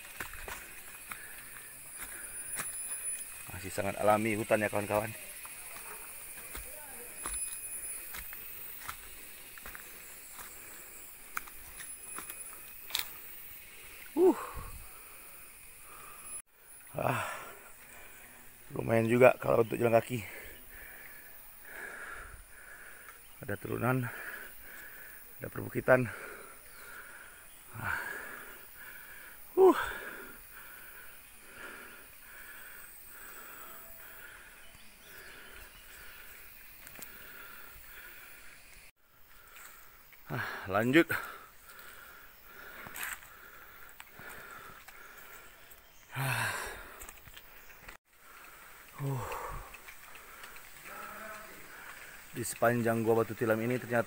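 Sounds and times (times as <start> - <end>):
footsteps crunching on dry leaves: 0.0 - 3.9, 5.3 - 13.2
faint pulsing forest call: 0.0 - 54.0
person breathing hard: 13.1 - 16.4, 20.2 - 23.4, 24.1 - 25.4, 26.1 - 47.3, 48.1 - 52.2
voiced exhalation: 13.8 - 18.4, 20.2 - 23.2, 26.1 - 36.4, 39.4 - 47.2, 48.5 - 52.2.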